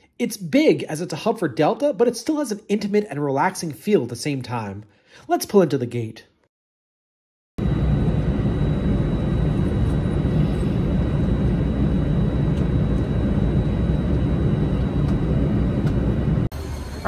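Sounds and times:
faint high whine: 7.6 - 17.0
jet engines idling rumble: 7.6 - 17.0.

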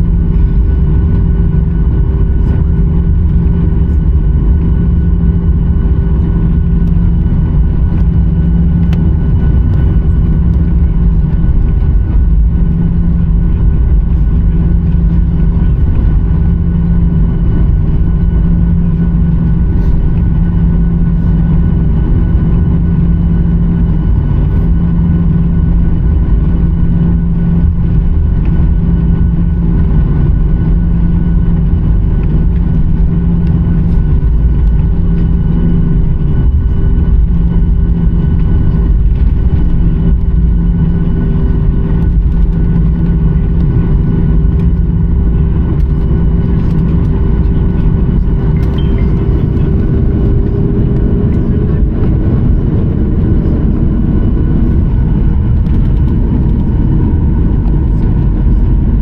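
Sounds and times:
airplane cabin rumble: 0.0 - 59.0
constant humming tones: 0.0 - 59.0.

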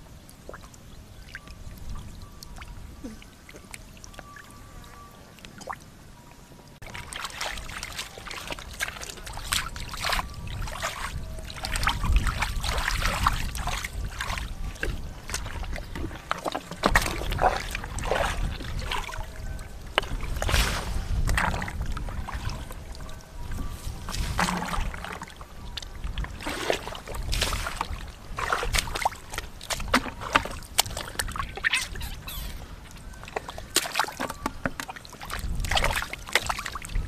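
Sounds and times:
hands splashing in muddy water: 24.0 - 25.3.

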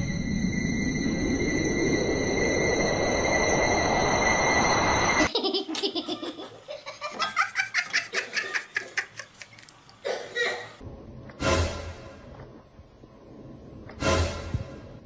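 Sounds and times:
person laughing: 5.2 - 9.6.

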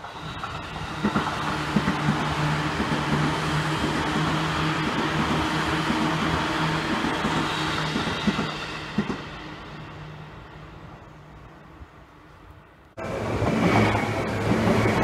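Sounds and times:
electric train passing: 0.0 - 15.0
train wheels knocking: 0.4 - 9.3.

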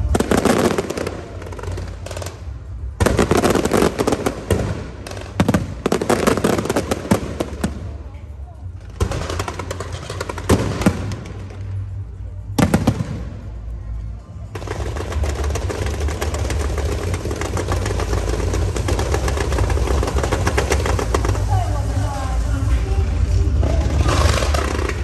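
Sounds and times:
firecracker bangs: 0.0 - 8.0, 9.0 - 11.9, 14.6 - 22.0
firecrackers crackling rapidly: 0.0 - 13.7, 14.5 - 25.0.

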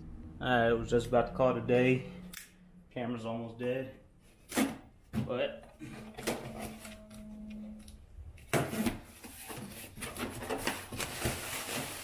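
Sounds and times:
cardboard box tape and flaps rustling: 8.5 - 12.0.

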